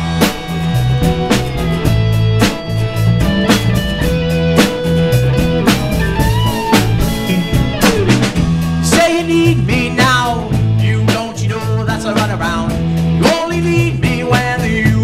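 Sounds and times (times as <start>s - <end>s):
live rock band playing: 0.0s - 15.0s
man singing: 8.8s - 15.0s.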